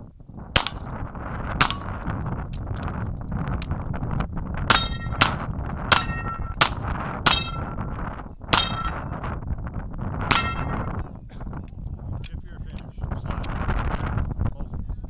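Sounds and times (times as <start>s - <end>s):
pistol shots: 0.6s - 0.9s, 4.7s - 7.6s
steel target clangs: 0.6s - 0.9s, 4.7s - 7.9s, 8.5s - 9.2s, 10.3s - 10.9s.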